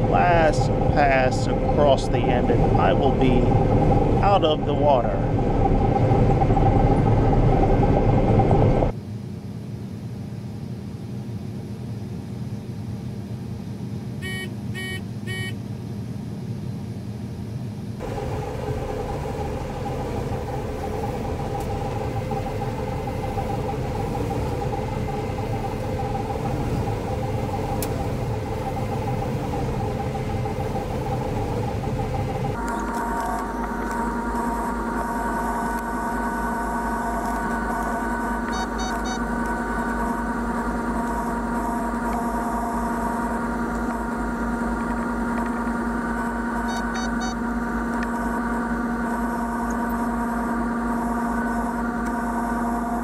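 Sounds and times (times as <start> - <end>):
combine diesel engine drone: 0.0 - 53.0
short electronic beeps: 14.2 - 15.6, 38.4 - 39.3, 46.6 - 47.4.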